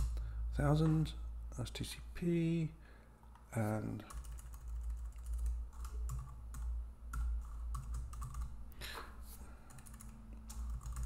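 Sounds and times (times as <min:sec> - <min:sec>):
steady low hum: 0:00.0 - 0:11.0
computer keyboard typing: 0:04.0 - 0:08.5, 0:09.7 - 0:11.0.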